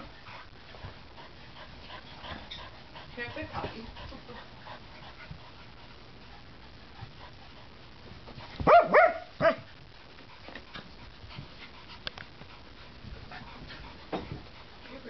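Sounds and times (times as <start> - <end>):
dog barking: 8.6 - 9.7.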